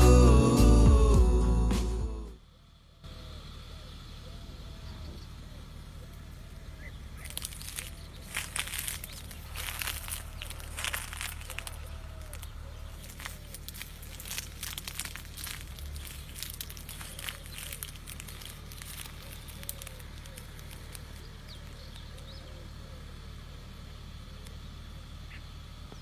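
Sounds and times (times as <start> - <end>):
low steady rumble: 0.0 - 26.0
footsteps crunching through dry grass: 6.8 - 22.9.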